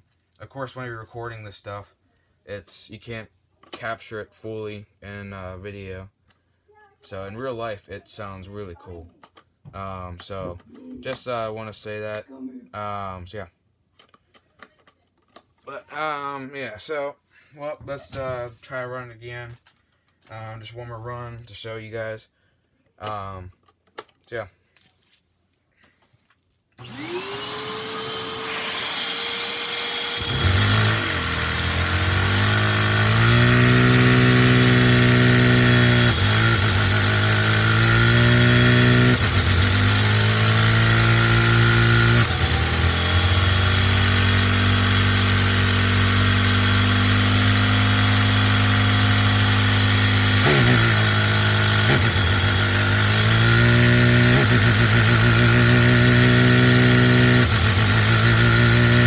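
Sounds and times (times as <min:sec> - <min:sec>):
vacuum cleaner whine and hiss: 0:26.8 - 0:30.2
small engine running fast: 0:26.8 - 0:59.0.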